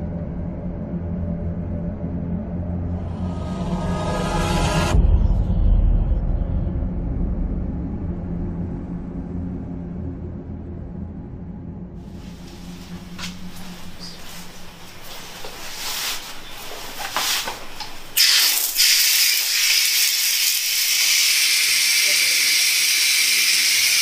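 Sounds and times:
hands washing under water: 12.2s - 24.0s
soft knocks and rustles: 12.3s - 18.0s
tap water running: 16.6s - 24.0s.

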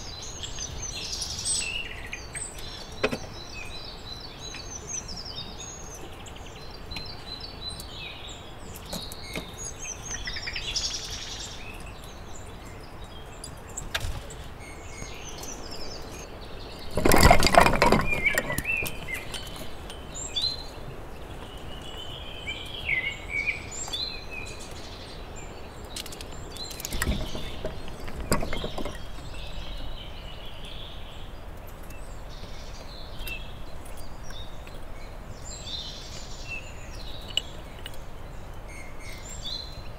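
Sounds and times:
songbirds chirping and singing: 0.0s - 39.9s
rustling and scraping: 13.4s - 22.1s, 25.9s - 30.7s.

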